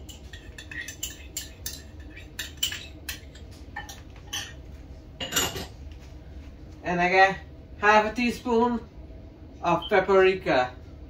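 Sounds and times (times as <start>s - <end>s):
spoon clinking against bowl: 0.0s - 4.6s.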